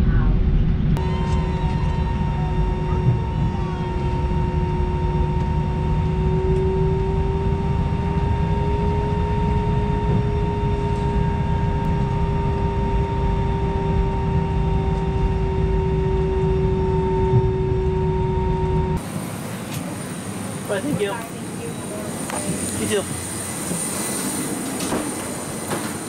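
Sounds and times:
airplane cabin low rumble: 0.0s - 26.0s
steady whine: 0.0s - 26.0s.

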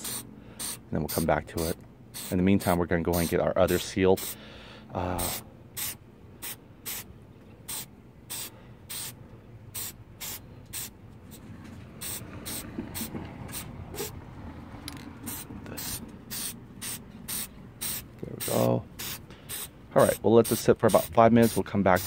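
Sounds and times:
aerosol spray hissing bursts: 0.0s - 1.3s, 2.2s - 4.4s, 5.2s - 7.0s, 7.7s - 9.2s, 9.8s - 10.9s, 12.0s - 14.2s, 15.3s - 19.8s, 20.4s - 22.0s.

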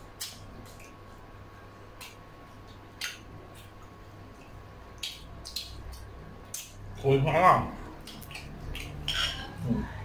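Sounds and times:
people chewing food: 0.0s - 10.0s
steady low hum: 0.0s - 10.0s
mouth clicks: 2.0s - 6.8s.

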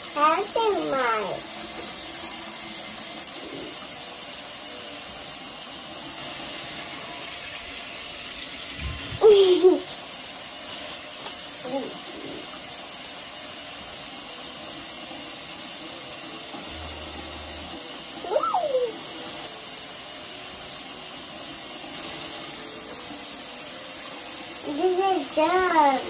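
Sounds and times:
child vocal sound: 18.2s - 19.1s.

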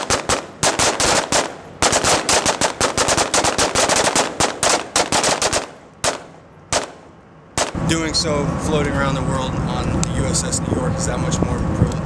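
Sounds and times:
rifle gunshots: 0.0s - 7.8s.

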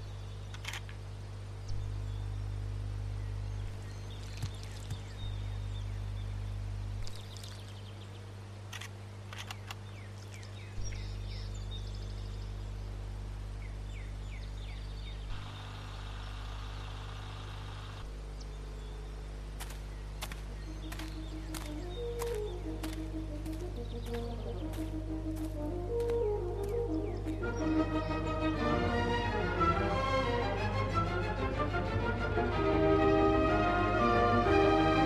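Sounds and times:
birds chirping: 0.0s - 30.4s
steady low hum: 0.0s - 35.0s
sharp clicks: 0.5s - 1.0s, 8.7s - 10.5s
harsh hiss-like noise: 15.0s - 18.3s.

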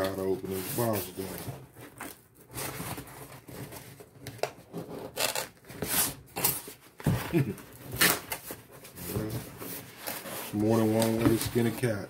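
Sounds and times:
cardboard rubbing and scraping: 0.2s - 1.7s, 7.8s - 12.0s
sharp cardboard scrape: 4.7s - 6.6s.

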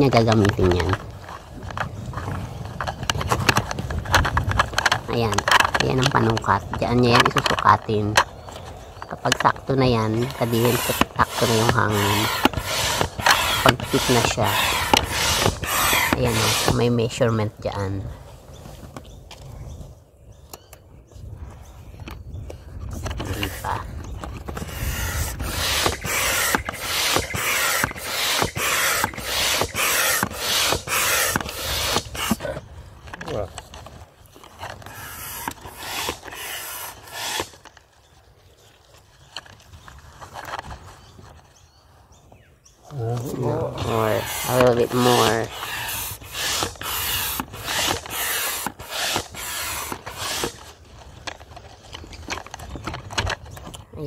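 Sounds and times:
air pump rushing air: 10.2s - 16.9s, 23.1s - 32.6s, 34.6s - 37.7s, 43.8s - 50.7s.

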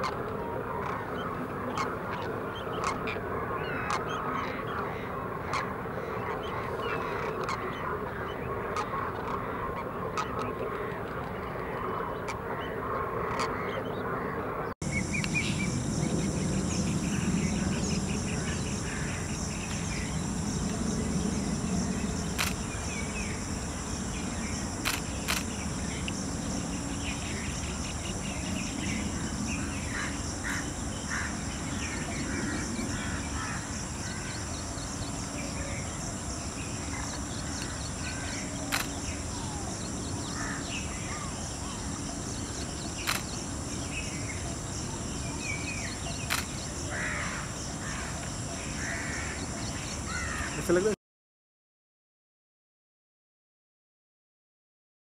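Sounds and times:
insects trilling: 0.0s - 51.0s
small birds chirping: 14.8s - 50.9s
sharp clicks: 22.4s - 22.6s, 24.8s - 25.5s, 46.3s - 46.6s.

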